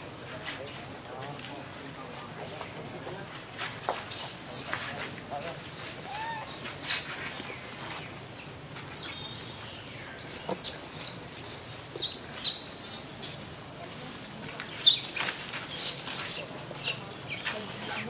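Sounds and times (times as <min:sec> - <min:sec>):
small birds chirping: 0:04.0 - 0:18.0.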